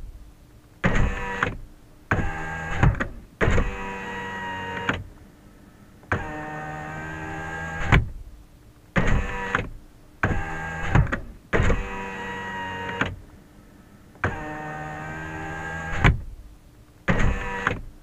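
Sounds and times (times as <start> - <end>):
power window motor whine: 0.8 - 5.1, 6.1 - 8.1, 9.0 - 13.2, 14.2 - 16.3, 17.1 - 17.9.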